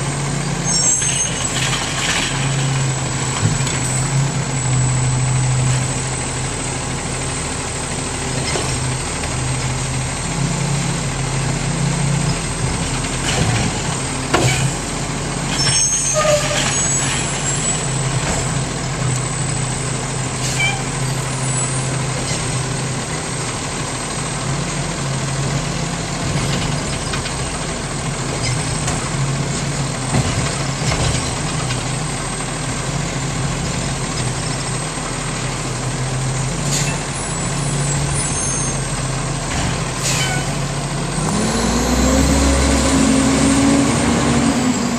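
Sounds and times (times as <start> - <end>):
diesel engine idling: 2.4 - 15.5
air brake hisses or clanks: 40.0 - 40.6
truck engine revving: 40.6 - 44.9.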